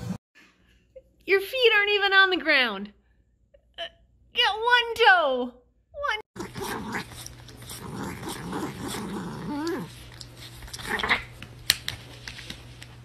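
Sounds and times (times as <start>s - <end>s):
cat growling: 6.4s - 10.1s, 10.7s - 11.4s.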